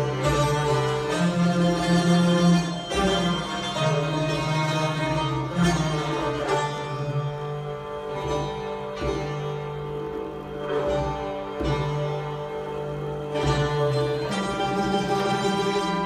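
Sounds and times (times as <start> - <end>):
classical string ensemble playing: 0.0 - 16.0.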